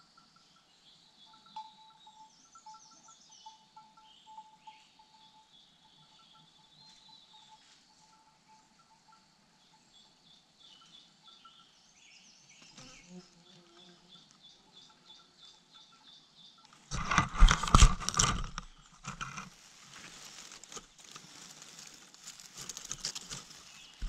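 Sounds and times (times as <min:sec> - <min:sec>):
faint insect-like chirping: 0:00.0 - 0:17.6
rustling in dry grass: 0:16.8 - 0:24.0.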